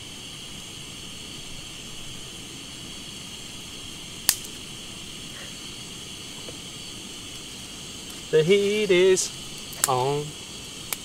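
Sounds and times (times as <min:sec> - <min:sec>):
gas stove burner hissing: 0:00.0 - 0:11.0
sharp crack: 0:04.2 - 0:04.6, 0:09.5 - 0:11.0.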